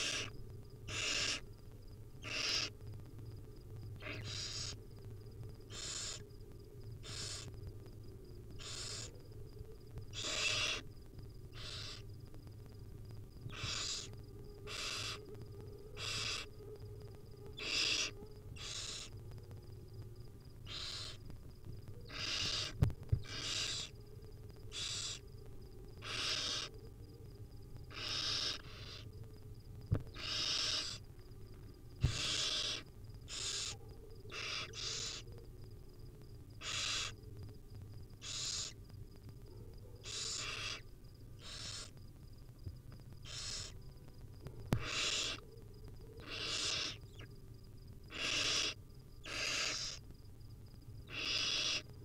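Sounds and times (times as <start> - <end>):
owl chicks hissing screeches: 0.0 - 1.4, 2.2 - 2.8, 4.0 - 4.8, 5.7 - 6.2, 7.0 - 7.5, 8.6 - 9.1, 10.1 - 10.8, 11.6 - 12.0, 13.5 - 15.2, 16.0 - 16.5, 17.6 - 19.2, 20.7 - 21.2, 22.1 - 24.0, 24.7 - 25.2, 26.0 - 26.7, 27.9 - 29.1, 30.1 - 31.0, 32.0 - 35.3, 36.6 - 37.2, 38.2 - 38.8, 40.0 - 40.8, 41.4 - 42.0, 43.2 - 43.8, 44.8 - 45.4, 46.2 - 47.3, 48.1 - 50.0, 51.0 - 51.9.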